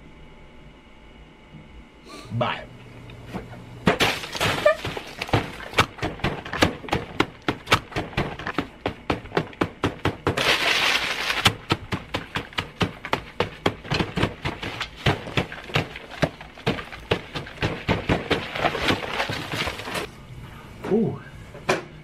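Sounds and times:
smacks smashing food on table: 3.9 - 20.1.

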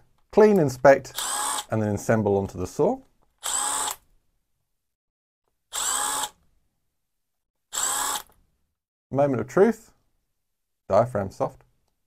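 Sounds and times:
power driver motor whine: 5.8 - 6.3.

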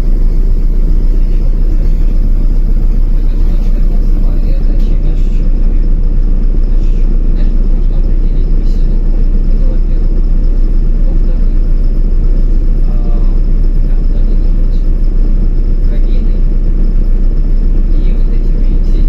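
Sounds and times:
bus engine and road rumble: 0.0 - 19.0.

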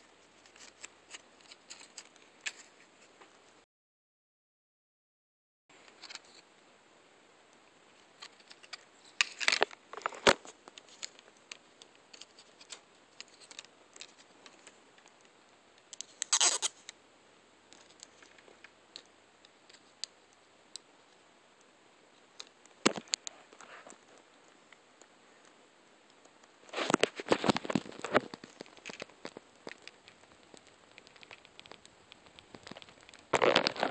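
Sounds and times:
plastic packaging clicks and scrapes: 0.2 - 3.1, 8.1 - 15.2, 15.9 - 17.0, 26.6 - 33.9
plastic crinkling: 8.0 - 15.2, 15.9 - 16.9, 26.6 - 33.9.

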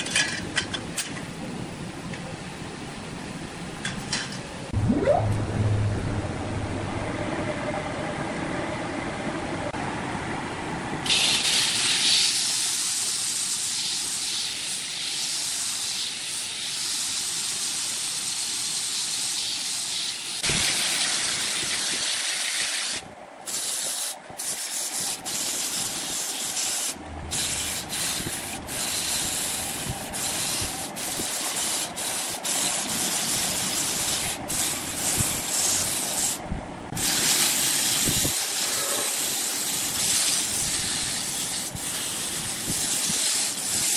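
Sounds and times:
sandpaper rasping on spinning wood: 23.5 - 36.4, 37.0 - 43.9.

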